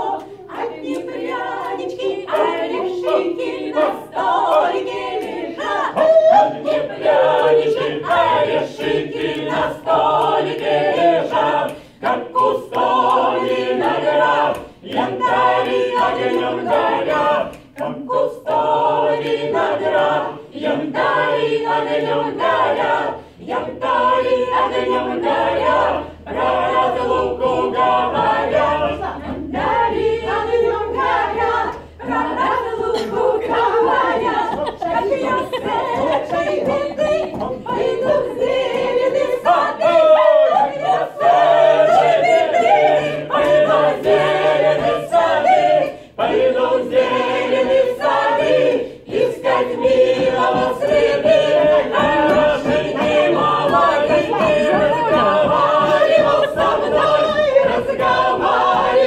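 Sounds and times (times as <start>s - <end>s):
group singing a cappella: 0.0s - 59.0s
singers breathing: 11.8s - 12.0s, 23.2s - 23.4s, 45.9s - 46.2s.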